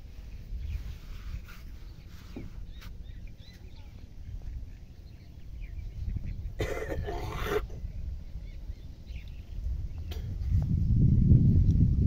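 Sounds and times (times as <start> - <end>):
wind on microphone: 0.0 - 12.0
faint bird chirps: 0.2 - 6.6.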